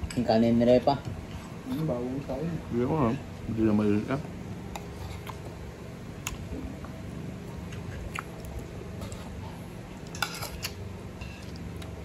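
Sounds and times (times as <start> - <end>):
steady low hum: 0.0 - 12.0
person chewing food: 4.7 - 5.6, 7.7 - 12.0.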